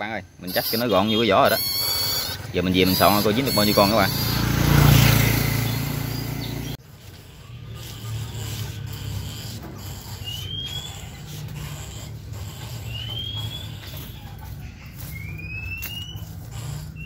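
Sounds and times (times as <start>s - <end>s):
short rising squeak: 0.4s - 17.0s.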